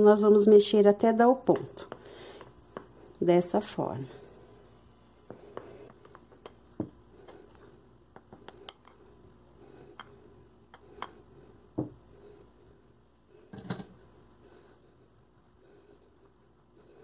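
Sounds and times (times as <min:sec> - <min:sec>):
spoon scraping dough in bowl: 0:01.2 - 0:11.3.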